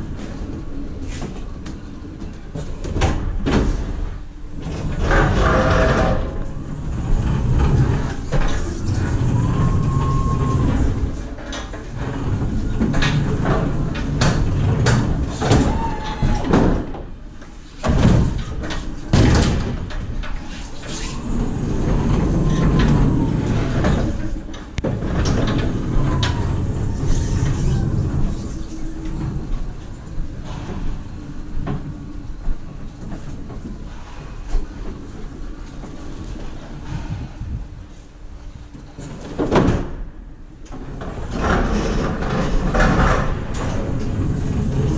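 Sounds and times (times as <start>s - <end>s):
wheels and load rattling on metal floor: 0.0s - 37.9s, 38.5s - 44.9s.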